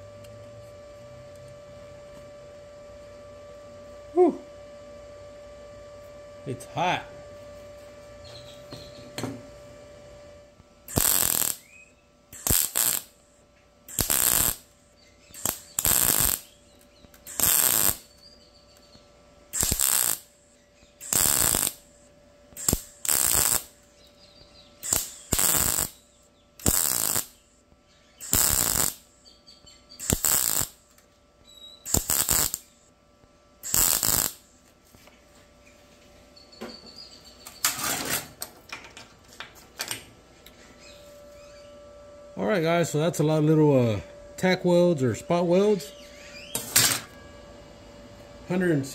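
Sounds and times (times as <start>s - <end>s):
crackling welding arc bursts: 10.8s - 18.2s, 19.5s - 23.8s, 24.8s - 27.5s, 28.2s - 29.2s, 30.0s - 30.9s, 31.8s - 32.9s, 33.6s - 34.6s.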